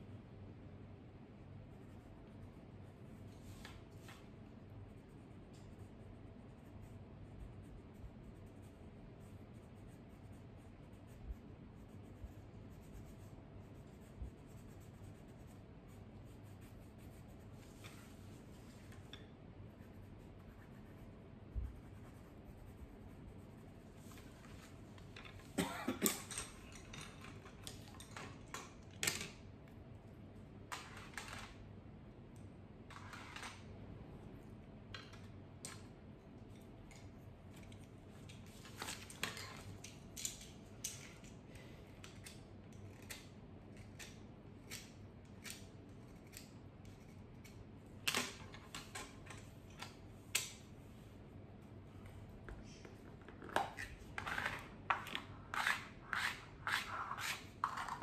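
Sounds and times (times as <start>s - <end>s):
pencils scratching on paper: 1.6s - 24.8s, 53.6s - 58.0s.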